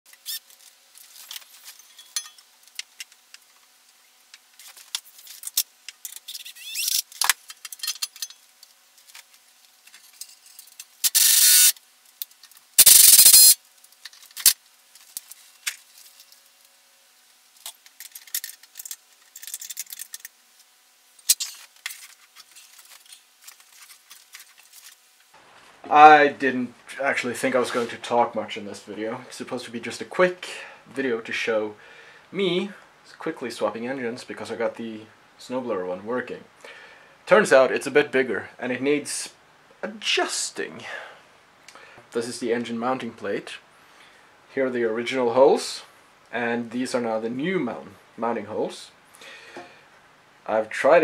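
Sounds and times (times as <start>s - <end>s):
metal tools clinking: 1.6s - 2.5s, 7.6s - 8.5s
cordless drill running: 11.0s - 11.8s, 12.8s - 13.6s.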